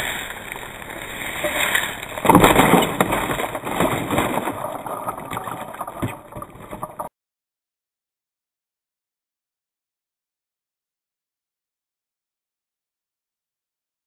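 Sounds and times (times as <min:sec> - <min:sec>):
bicycle rolling on concrete: 0:00.0 - 0:07.1
loud crunching rush: 0:00.0 - 0:07.1.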